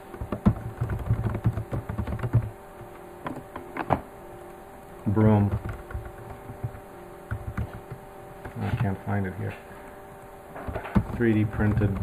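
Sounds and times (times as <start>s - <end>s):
computer keyboard typing: 0.1s - 4.0s, 5.1s - 9.0s, 10.6s - 12.0s.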